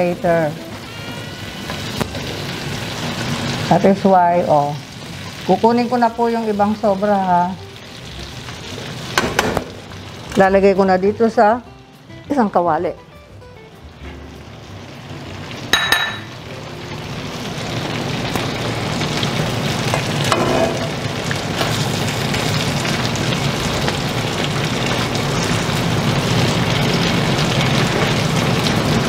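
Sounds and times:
chicken sizzling in a wok: 0.0 - 29.0
spoon knocking in pan: 9.1 - 9.8, 15.7 - 16.4
metal spoon clinking on pan: 15.7 - 16.3.

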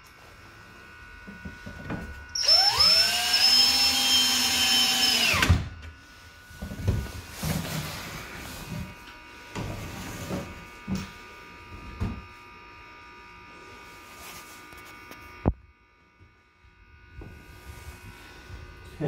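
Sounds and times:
cordless drill motor whining: 0.9 - 6.0.

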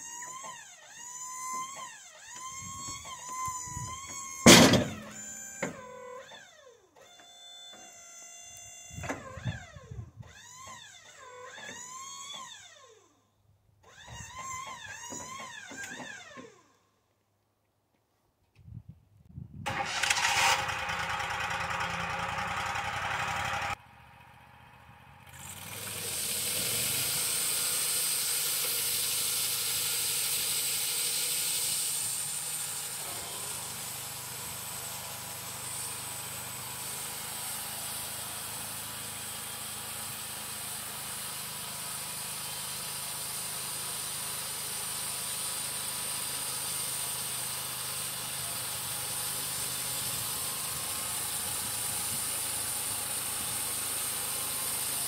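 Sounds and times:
sawmill engine hum: 0.0 - 12.8, 19.7 - 55.0
band saw blade hissing: 25.5 - 39.5.

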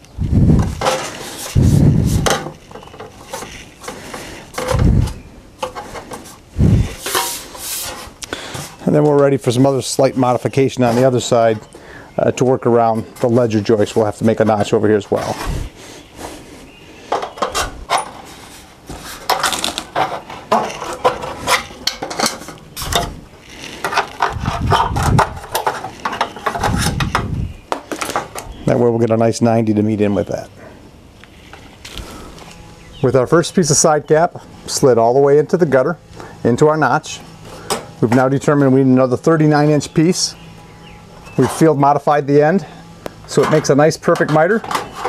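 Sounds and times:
sheet metal scraping: 0.5 - 9.0, 13.0 - 28.3.

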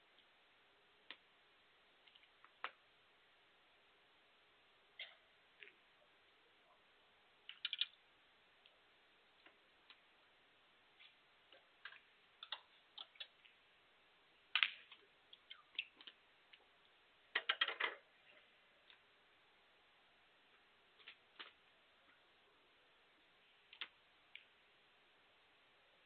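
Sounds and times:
snooker balls clicking: 17.3 - 18.0.

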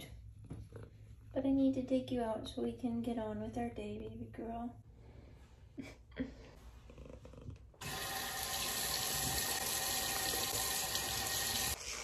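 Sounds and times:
faucet running into sink: 7.8 - 12.0.

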